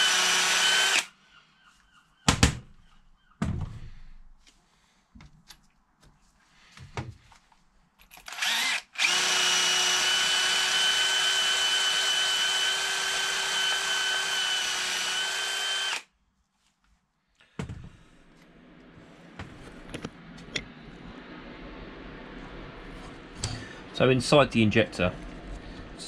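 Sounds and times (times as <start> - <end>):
cordless drill whining: 0.0 - 1.1, 8.2 - 16.1.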